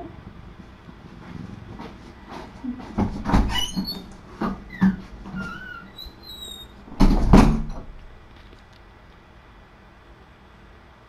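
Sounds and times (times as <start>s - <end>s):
knocks and bumps: 1.7s - 5.7s, 6.9s - 8.5s
short high squeaks: 3.5s - 6.9s.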